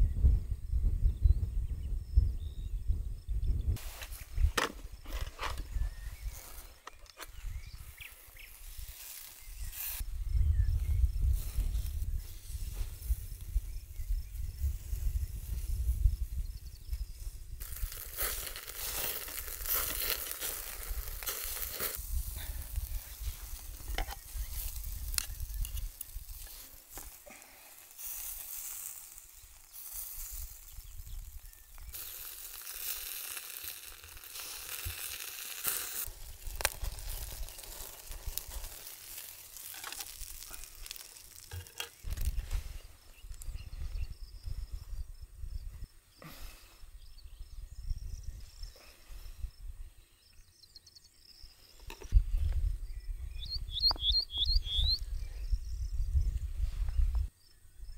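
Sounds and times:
wind rumbling on microphone: 0.0 - 27.1, 29.9 - 32.5, 35.9 - 50.0, 51.8 - 57.9
meat sizzling over fire: 3.8 - 46.4
fire crackles: 3.8 - 46.5.

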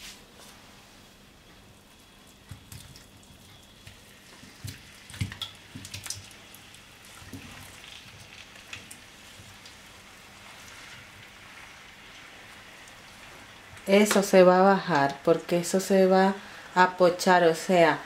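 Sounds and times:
oil sizzling: 1.6 - 18.0.

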